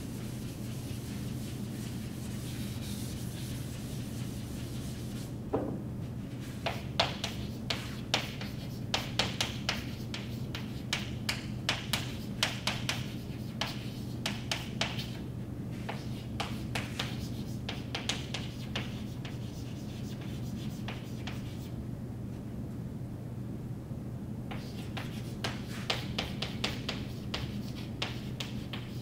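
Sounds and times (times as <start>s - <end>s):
chalk scratching on chalkboard: 0.0s - 5.3s, 6.4s - 11.1s, 11.7s - 15.2s, 15.8s - 21.7s, 24.5s - 29.0s
steady low hum: 0.0s - 29.0s.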